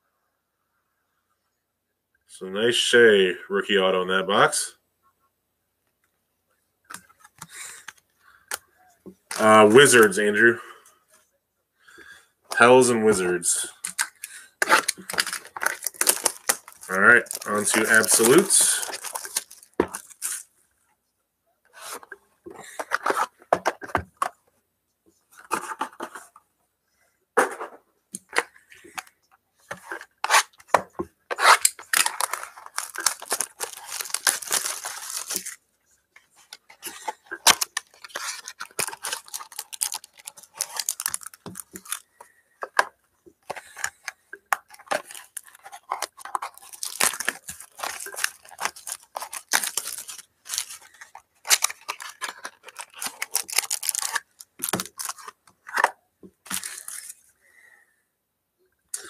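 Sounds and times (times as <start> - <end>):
plastic wrapping tearing and crinkling: 9.3 - 10.1, 13.7 - 20.5, 29.8 - 35.6, 36.4 - 57.2.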